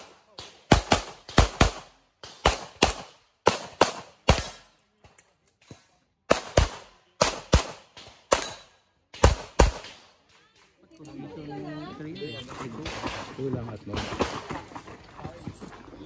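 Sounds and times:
pistol shots: 0.0 - 4.7, 6.3 - 10.1.

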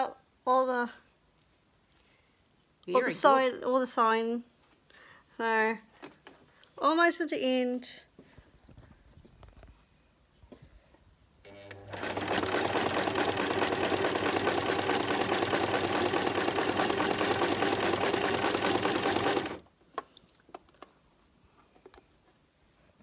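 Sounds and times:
sewing machine stitching: 11.5 - 19.6.

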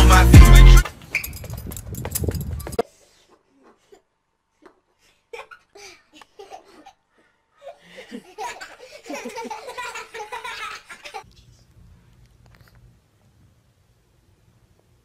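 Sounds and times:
people laughing: 7.9 - 11.2.

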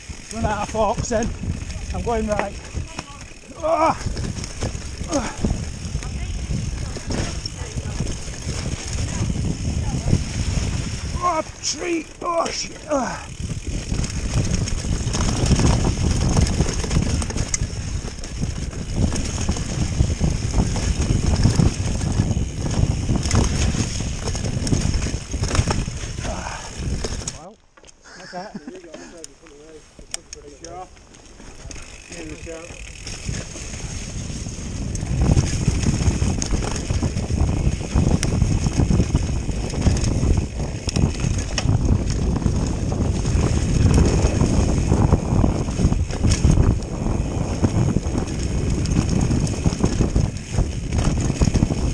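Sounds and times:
wind buffeting microphone: 0.0 - 27.5, 30.7 - 51.9
mountain bike rattling: 0.0 - 51.9.

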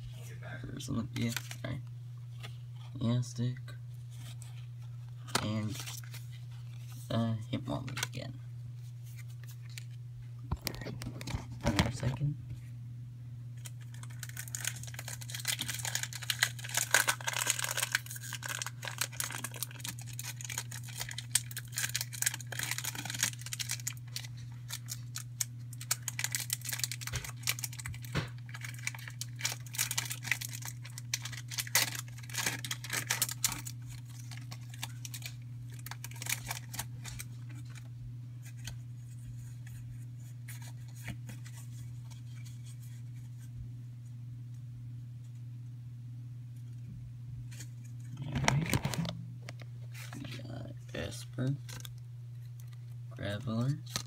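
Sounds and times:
foil wrapper crinkling and tearing: 1.2 - 1.6, 5.4 - 7.0, 13.6 - 38.8, 48.3 - 49.1, 51.0 - 54.0
cards rustling and clicking: 5.2 - 7.0, 13.6 - 43.1.

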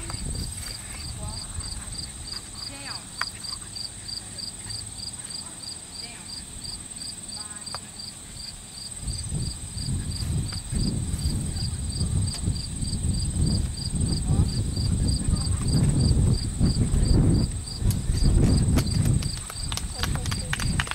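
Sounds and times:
low rumble on microphone: 0.0 - 3.0, 8.3 - 20.9
continuous insect trill: 0.0 - 20.9
insect chirp pulsing: 0.0 - 20.9.

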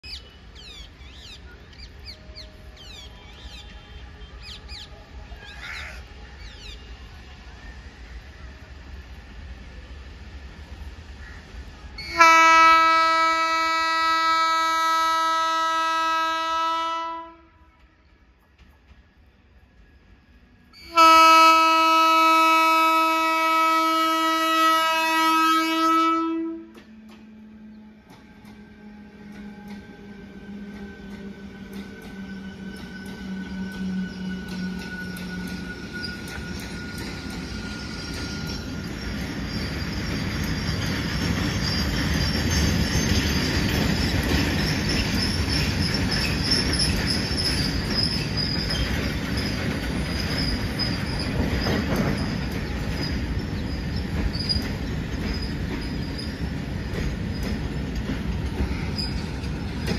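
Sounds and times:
locomotive horn blast: 12.0 - 17.8, 20.8 - 26.8
wagons clicking on rails: 30.6 - 59.9.

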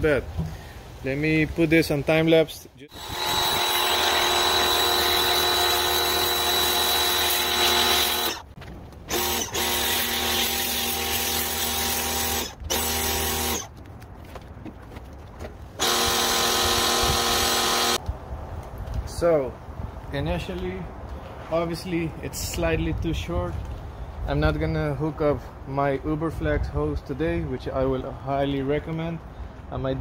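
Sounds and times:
pressure washer motor whine: 15.8 - 18.0.

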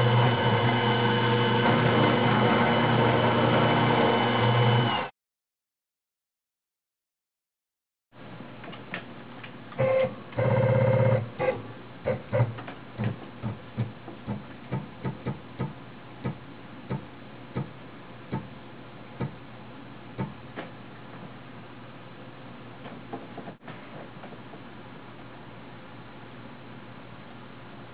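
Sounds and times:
stepper motors whining: 0.0 - 5.1.

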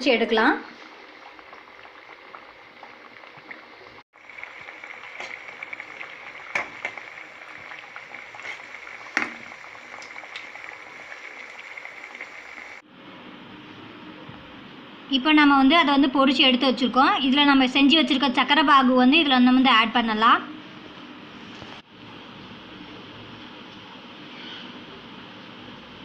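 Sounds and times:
dough sizzling in hot oil: 0.0 - 12.8.

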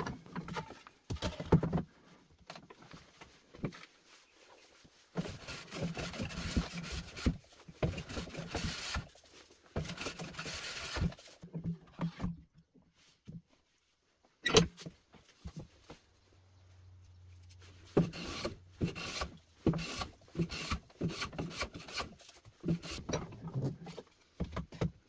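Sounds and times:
hand plane cutting wood: 5.2 - 9.1, 9.8 - 11.2, 18.0 - 23.2.

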